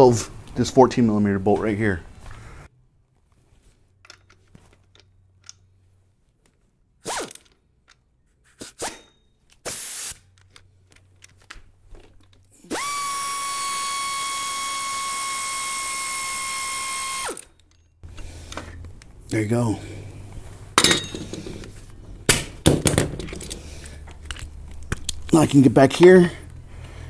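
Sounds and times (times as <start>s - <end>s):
air ratchet whining: 12.6s - 18.8s.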